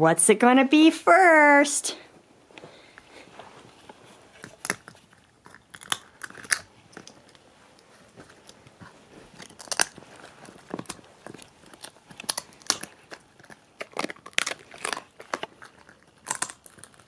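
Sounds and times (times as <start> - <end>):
dog chewing and crunching food: 2.8 - 17.0.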